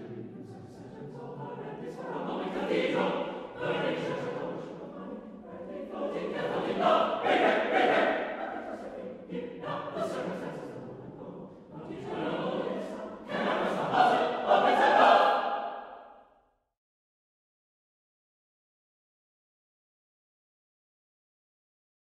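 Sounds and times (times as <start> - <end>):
choir singing in harmony: 0.0 - 16.2.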